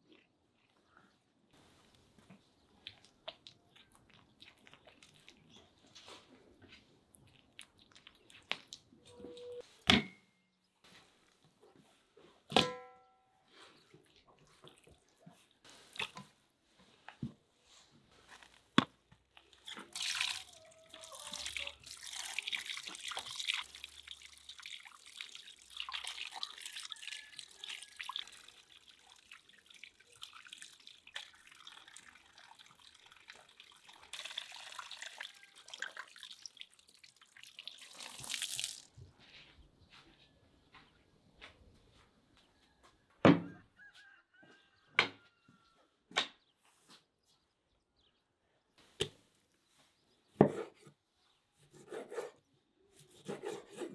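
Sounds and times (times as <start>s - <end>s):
water running and splashing in bowl: 19.6s - 39.0s.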